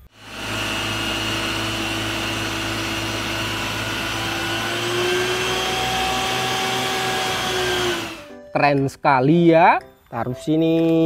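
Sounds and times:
truck water pump droning: 0.1s - 8.3s.

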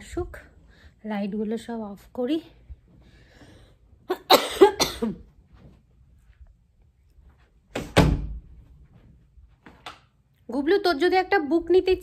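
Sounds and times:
door shutting with heavy thud: 7.7s - 8.5s.

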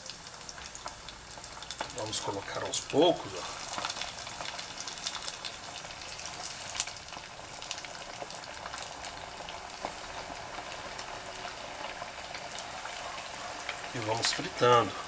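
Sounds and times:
meat deep-frying in oil: 0.0s - 15.0s.

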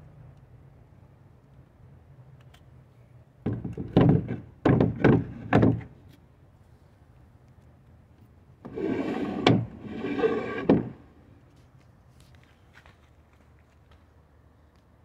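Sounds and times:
hollow wooden knocks: 3.4s - 5.9s, 8.7s - 11.0s
seat sliding rumble on rails: 8.7s - 11.1s.

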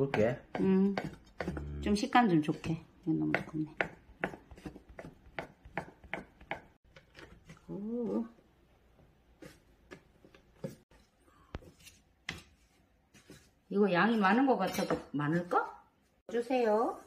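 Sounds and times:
knife chopping on wooden board: 0.0s - 1.7s, 3.2s - 6.8s.

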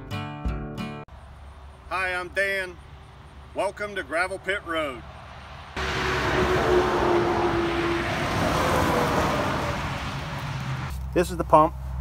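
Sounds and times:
vehicle passing by: 2.8s - 11.0s.

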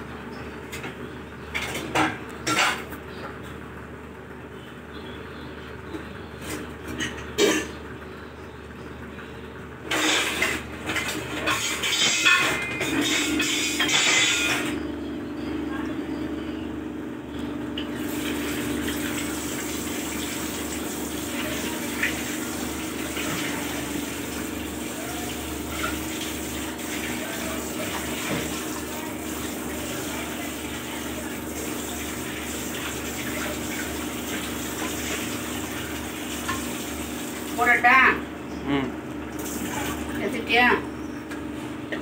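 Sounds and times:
metal utensils clinking: 10.0s - 14.7s
tap water running into sink: 17.9s - 37.6s.

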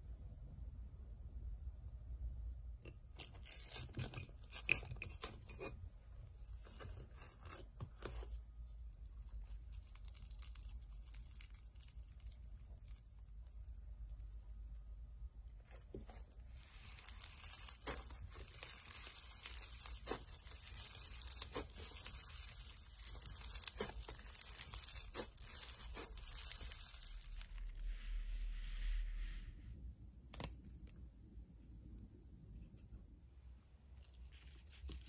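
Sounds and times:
slime crackling and tearing: 9.1s - 14.4s, 15.6s - 27.8s
soft hiss: 16.0s - 30.1s
low rumble: 27.7s - 30.2s.

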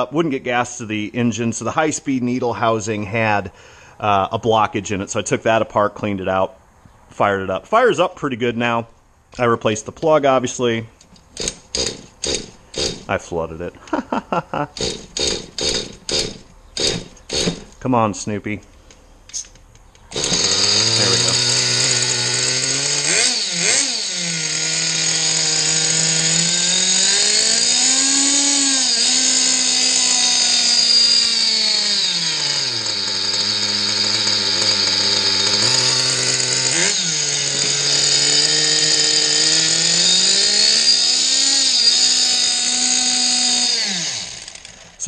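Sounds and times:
small nitro engine running: 20.1s - 45.0s.

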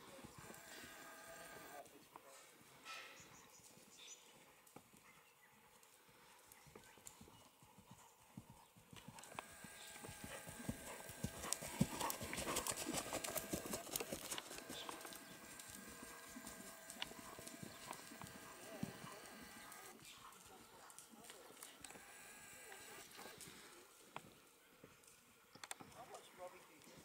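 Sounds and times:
horse hoofbeats on sand: 6.8s - 21.5s.

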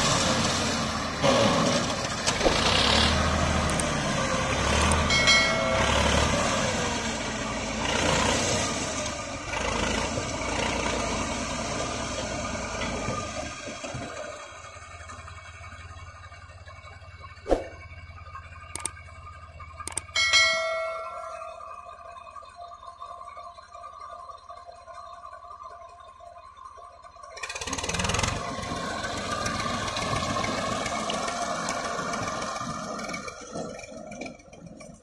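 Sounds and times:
tractor diesel engine running: 0.0s - 35.0s
sharp knock: 17.5s - 17.8s.

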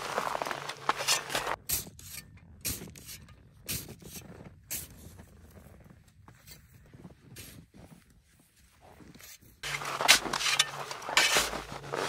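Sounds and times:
snow shovel scraping snow: 0.0s - 1.6s, 9.1s - 12.0s
crunches of dry snow: 0.0s - 12.0s.

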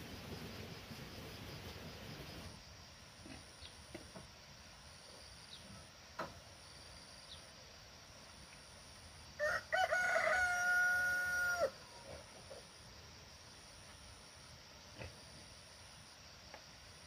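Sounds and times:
rooster crowing: 9.4s - 12.0s.

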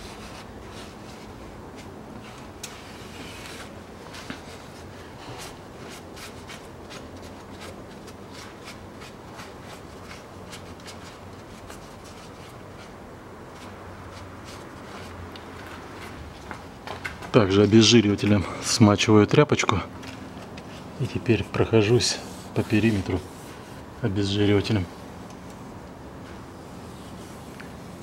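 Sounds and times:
steady background hiss: 0.0s - 28.0s
cloth rag rubbing on metal: 20.6s - 24.8s.

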